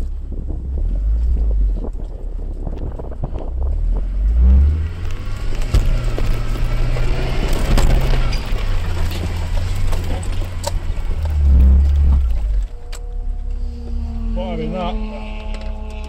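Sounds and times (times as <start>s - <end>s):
car engine pulling: 0.0s - 16.0s
body knocks and rattles: 4.9s - 12.9s.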